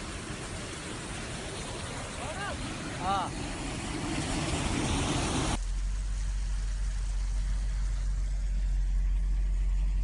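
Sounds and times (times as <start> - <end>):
rushing floodwater hiss: 0.0 - 9.2
car driving rumble from cabin: 5.5 - 10.0.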